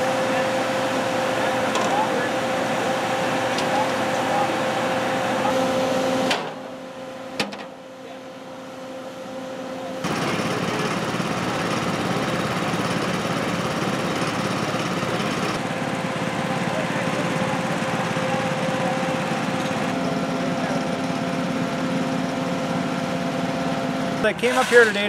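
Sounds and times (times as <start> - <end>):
machine drone with hum: 0.0 - 25.0.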